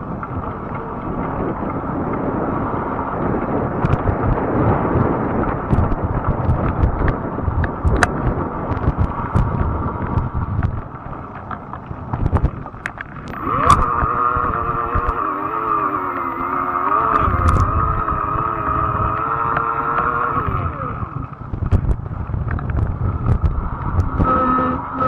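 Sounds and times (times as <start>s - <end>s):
wind buffeting microphone: 0.0s - 25.0s
steady pitched whine: 12.3s - 25.0s.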